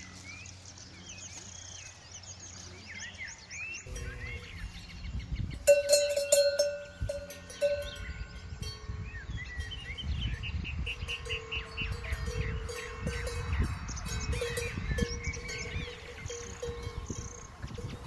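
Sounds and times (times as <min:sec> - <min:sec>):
birds chirping: 0:00.0 - 0:18.0
cowbells clanking: 0:03.8 - 0:04.9, 0:05.6 - 0:18.0.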